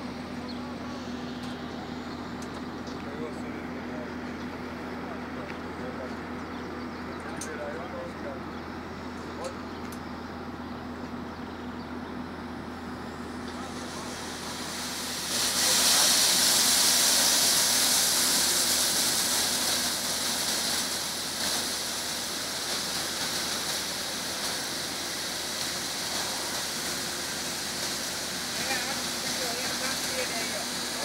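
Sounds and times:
steady low hum: 0.0s - 31.0s
water jets spraying hiss: 13.0s - 31.0s.

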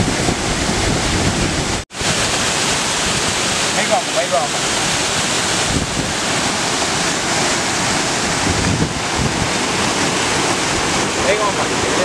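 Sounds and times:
wind buffeting microphone: 0.0s - 2.2s, 4.8s - 11.9s
waterfall rushing: 0.0s - 12.0s.

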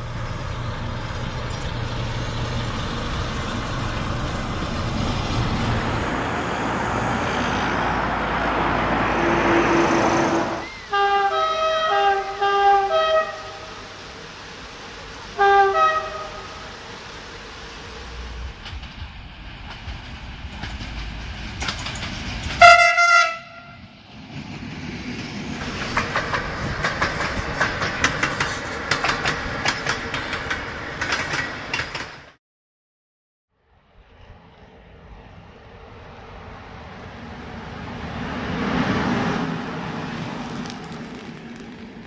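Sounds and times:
train horn blasts: 9.2s - 14.0s, 15.3s - 16.6s, 22.6s - 23.8s
wheels clattering over rail joints: 18.4s - 22.9s, 24.2s - 32.3s.

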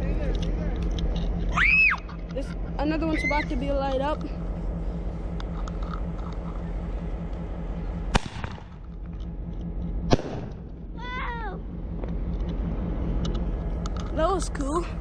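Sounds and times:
firework bangs: 8.1s - 8.8s, 10.1s - 10.7s.

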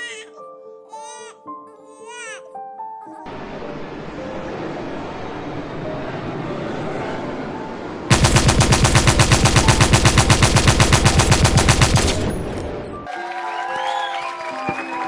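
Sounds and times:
machine-gun fire: 8.1s - 12.8s.

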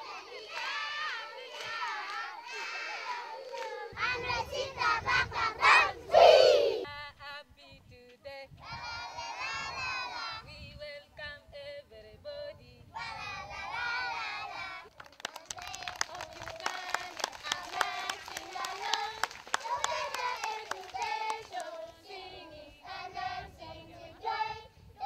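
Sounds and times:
children singing: 15.8s - 24.6s.

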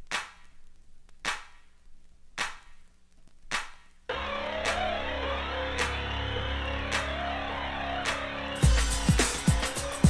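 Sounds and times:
clap-like percussion hits: 0.1s - 0.5s, 1.2s - 1.7s, 2.4s - 2.8s, 3.5s - 3.9s, 4.5s - 7.4s, 8.0s - 10.0s
electronic music with bass: 4.1s - 10.0s.

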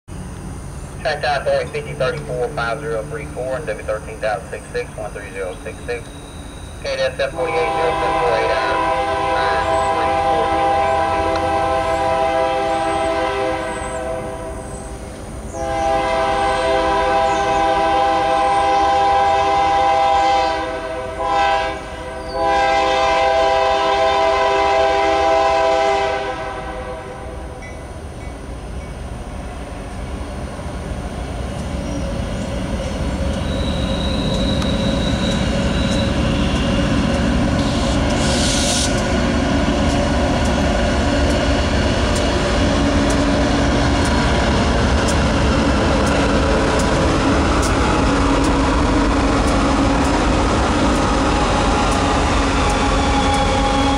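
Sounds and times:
low rumble of locomotives: 0.1s - 53.9s
locomotive air horn blasts: 7.2s - 14.7s, 15.6s - 27.4s, 33.5s - 39.0s.

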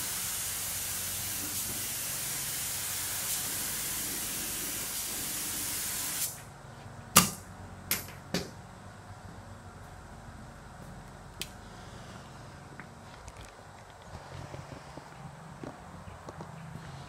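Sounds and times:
paint spray gun hissing: 0.0s - 6.5s.

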